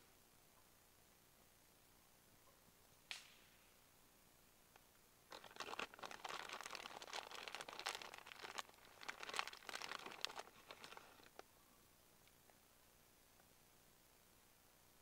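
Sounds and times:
plastic bag crinkling: 5.3 - 11.4.

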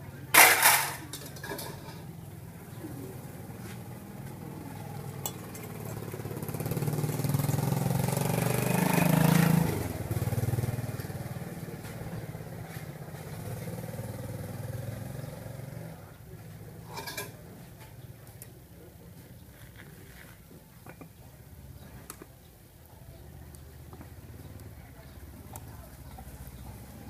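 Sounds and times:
passing vehicle engine: 2.4 - 16.2.

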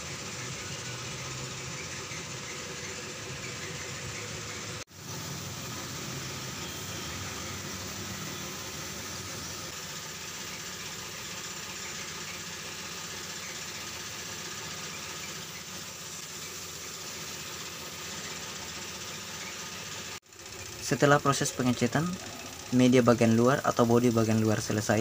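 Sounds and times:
machine running steadily: 0.0 - 25.0
spray gun air hiss: 4.9 - 20.2.

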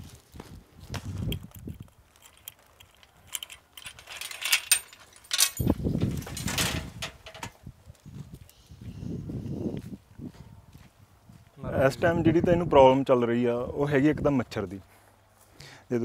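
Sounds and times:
metal gate rattling and clinking: 2.1 - 7.6.

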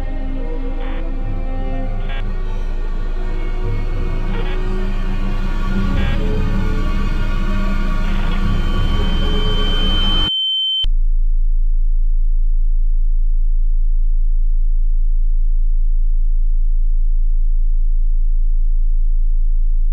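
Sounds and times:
dark trailer music: 0.0 - 10.3
low pulsing electronic drone: 0.0 - 10.3
high pure tone: 0.0 - 10.9.

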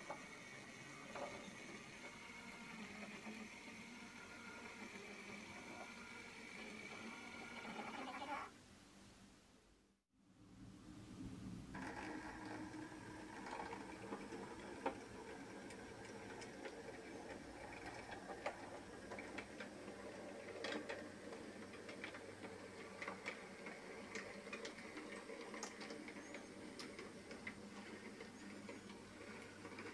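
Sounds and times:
small electric motor humming: 0.0 - 8.5
wheels clicking on track: 11.7 - 29.9.

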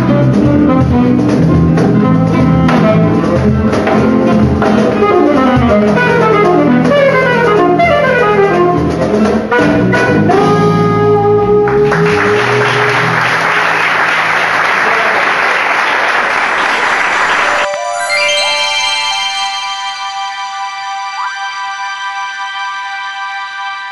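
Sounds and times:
guitar and cajon: 0.0 - 10.6
saxophone runs: 0.0 - 14.1.

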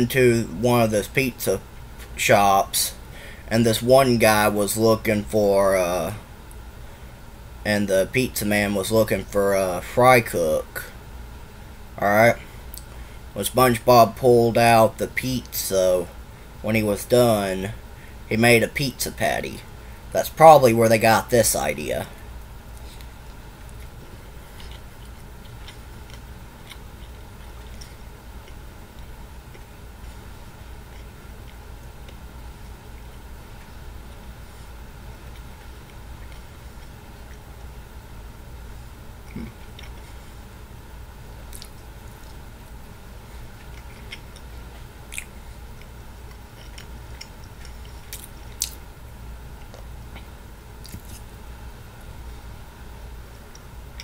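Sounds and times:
steady low hum: 0.0 - 54.0
wet chewing: 22.7 - 37.7, 39.2 - 40.4, 41.4 - 42.8, 43.4 - 48.8, 49.5 - 51.3
lip smacks: 41.4 - 42.4, 43.4 - 48.8, 49.6 - 51.3.

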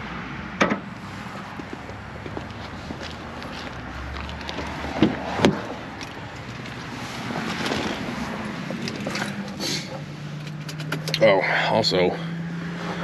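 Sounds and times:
car engine starting and idling: 0.6 - 13.0
person climbing into car seat: 1.6 - 10.0.

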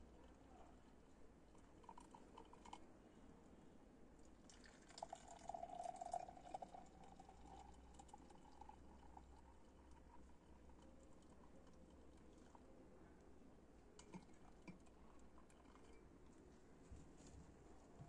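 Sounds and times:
tea pouring into glass mug: 1.8 - 2.8, 4.3 - 12.6, 14.0 - 16.1.

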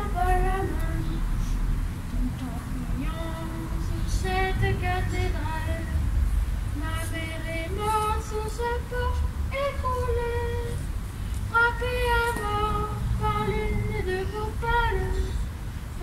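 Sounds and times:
children's choir singing: 0.0 - 1.5, 11.6 - 15.4.

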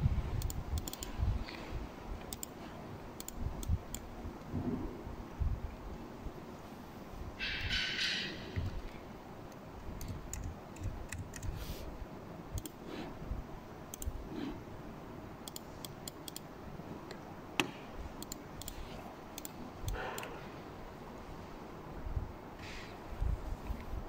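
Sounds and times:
keyboard and mouse clicking: 0.4 - 1.6, 2.2 - 4.1, 8.6 - 11.6, 12.5 - 12.8, 13.9 - 14.2, 15.4 - 20.4.

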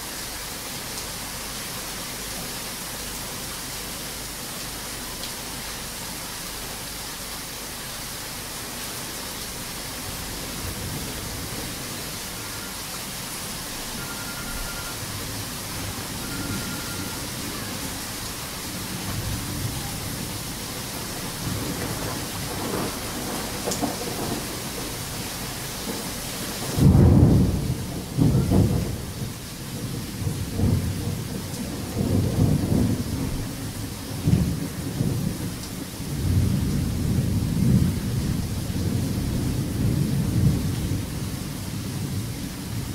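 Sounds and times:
heavy rain hissing: 0.0 - 42.9
thunder rumbling: 13.7 - 42.9
thunderclap: 21.4 - 24.9, 25.9 - 33.5.

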